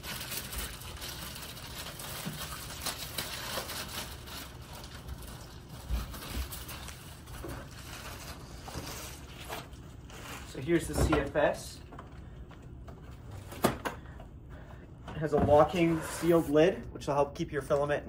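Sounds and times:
plastic wrapping crinkling: 0.0s - 11.5s.

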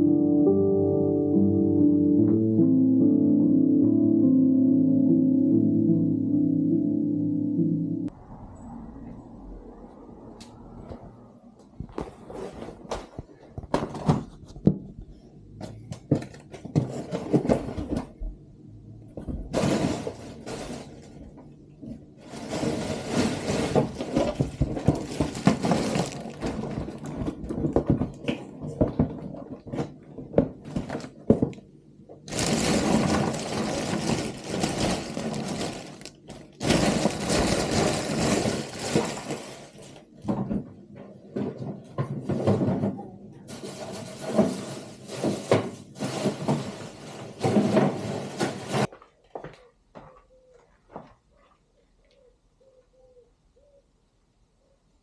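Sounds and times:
plastic bag crinkling: 22.3s - 27.8s, 32.3s - 40.0s
cardboard box being opened: 22.7s - 27.8s, 32.3s - 39.7s.

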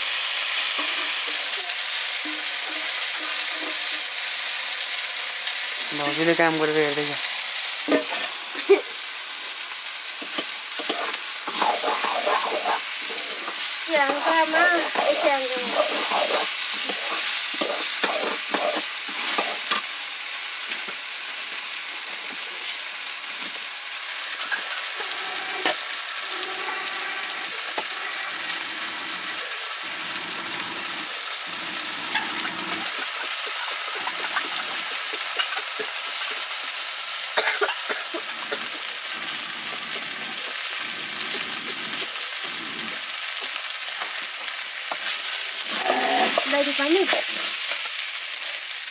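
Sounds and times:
rice sizzling in a wok: 0.0s - 48.9s
metal ladle scraping wok: 10.2s - 19.8s.

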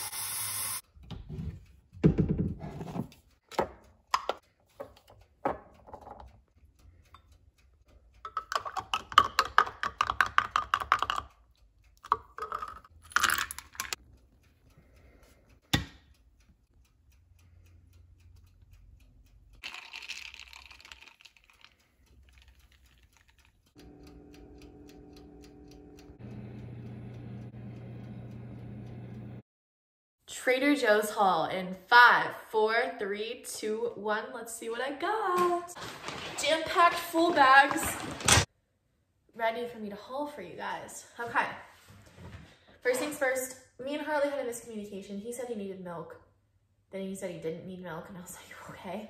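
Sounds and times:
air fryer humming: 23.8s - 29.4s.

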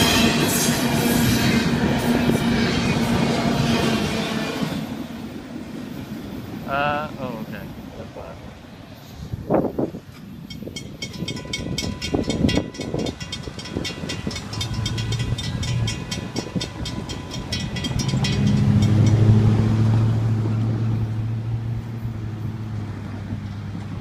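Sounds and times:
railroad crossing bells ringing: 10.2s - 22.5s
vehicle engine hum: 14.3s - 24.0s.

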